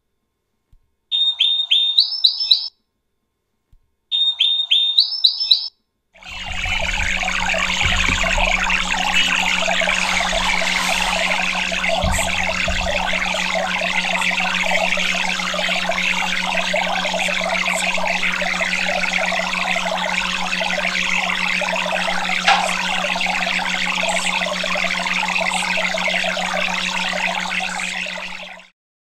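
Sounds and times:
running water: 6.2s - 28.6s
steady low hum: 6.2s - 28.7s.

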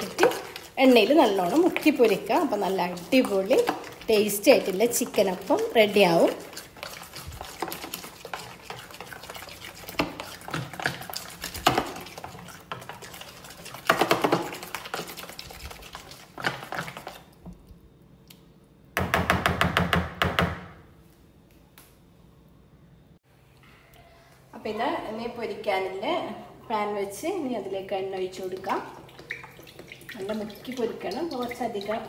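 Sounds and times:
spoon stirring batter in bowl: 0.0s - 17.5s, 28.0s - 32.0s.

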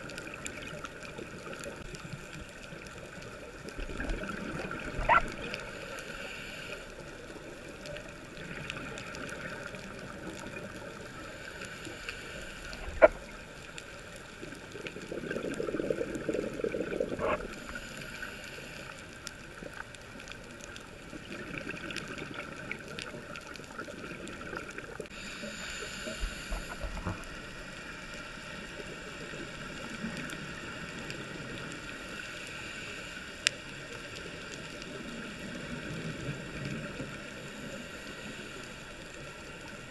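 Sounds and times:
regulator bubbles gurgling: 0.0s - 6.0s, 12.7s - 18.0s, 19.3s - 25.3s
muffled underwater ambience: 0.0s - 39.9s.

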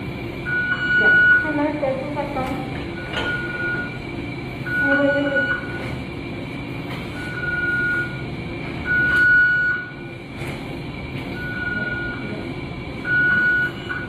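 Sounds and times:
steady background hum: 0.0s - 14.0s
medical equipment alarm beeps: 0.4s - 2.1s, 2.9s - 6.1s, 7.1s - 10.1s, 11.2s - 12.4s, 13.0s - 14.0s.

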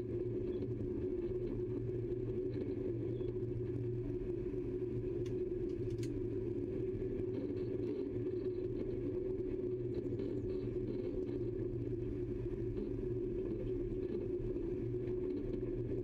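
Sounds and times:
faint clicks: 5.2s - 6.2s.

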